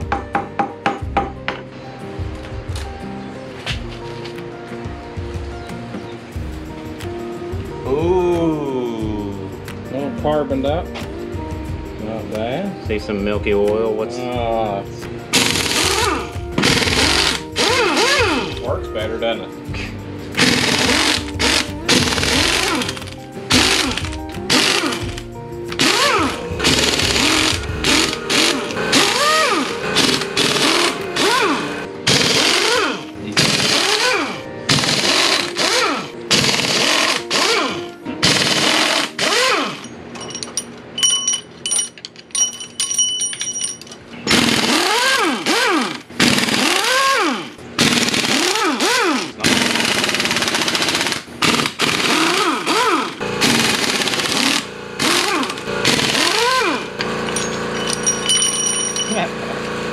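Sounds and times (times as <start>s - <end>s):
pneumatic impact wrench bursts: 15.3s - 18.5s, 20.4s - 25.2s, 25.8s - 40.0s, 44.2s - 58.4s.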